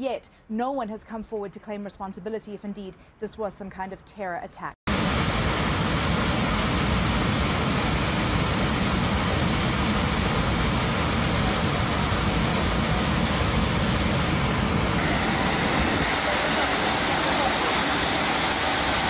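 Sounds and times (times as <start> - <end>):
aircraft engine noise: 4.9 - 19.0
rushing air in aircraft cabin: 4.9 - 19.0.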